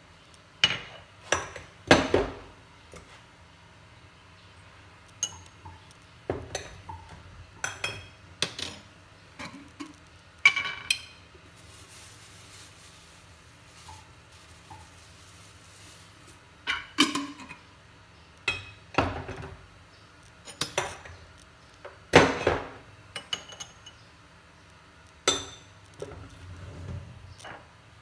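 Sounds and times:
pots and dishes clinking: 6.3 - 11.2, 16.6 - 17.6, 20.4 - 21.1.

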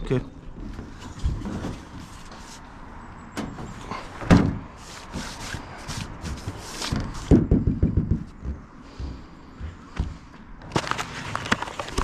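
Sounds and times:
sharp thump on metal roof: 3.4 - 4.7
knocks on sheet-metal roof: 6.4 - 10.2.

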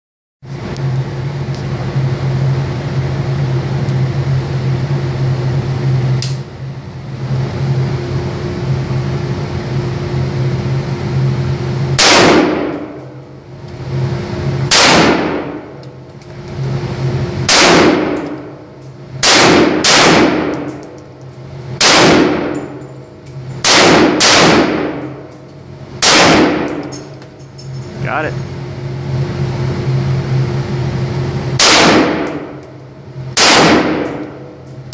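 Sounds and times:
steady hum: 0.4 - 34.9
rifle shots echoing indoors: 12.0 - 13.0, 14.7 - 15.6, 17.5 - 18.5, 19.2 - 20.8, 21.8 - 22.8, 23.6 - 25.2, 26.0 - 27.0, 31.6 - 32.6, 33.3 - 34.5.

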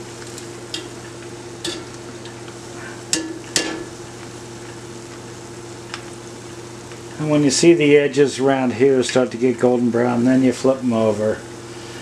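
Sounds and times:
dough sizzling in oil: 0.0 - 9.5.

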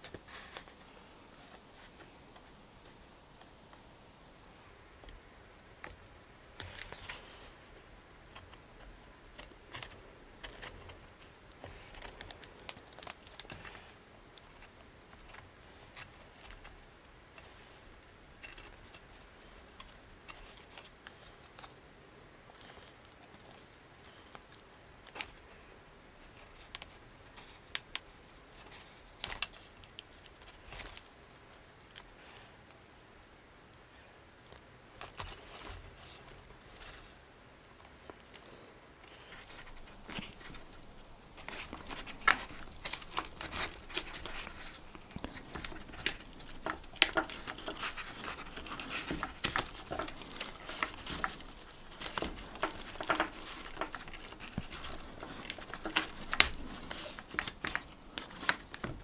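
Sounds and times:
leather rustling: 39.0 - 59.0.

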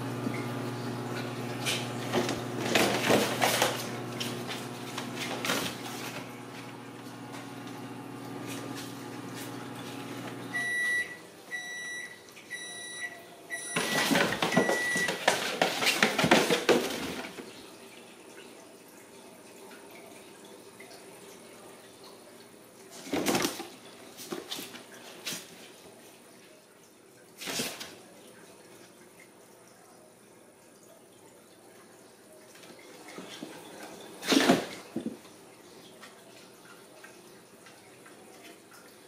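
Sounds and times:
high appliance beeps: 0.0 - 1.1, 10.3 - 15.2
appliance hum: 0.0 - 18.1.

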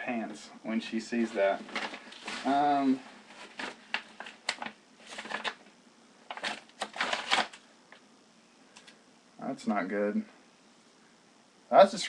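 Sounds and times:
packaging rustling: 1.2 - 7.7.

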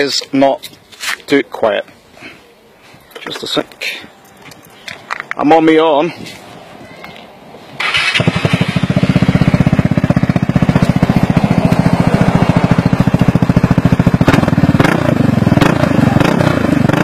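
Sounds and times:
scooter engine idling: 7.8 - 17.0.

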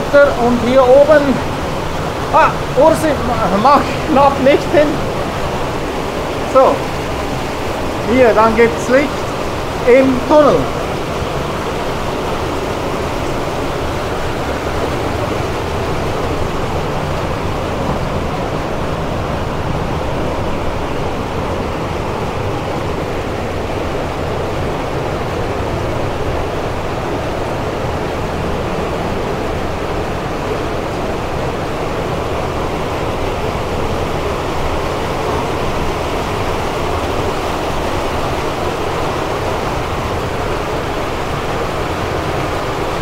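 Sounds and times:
water rushing along a channel: 0.0 - 43.0.

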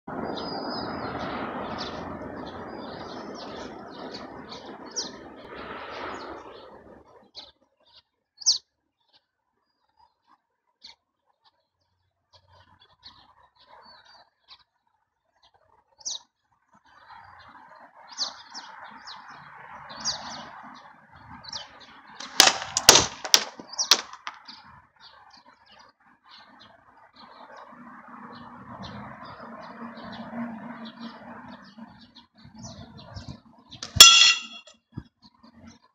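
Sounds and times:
small birds chirping: 0.1 - 35.9
sharp loud taps: 22.2 - 24.4.

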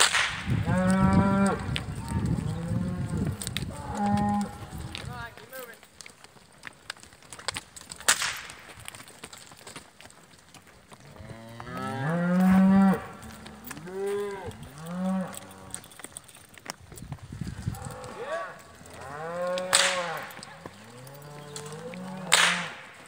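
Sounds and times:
sharp crack: 0.0 - 1.8, 6.8 - 9.4, 18.9 - 23.0
cattle mooing: 0.6 - 1.8, 2.4 - 4.9, 11.0 - 15.9, 17.8 - 22.8.

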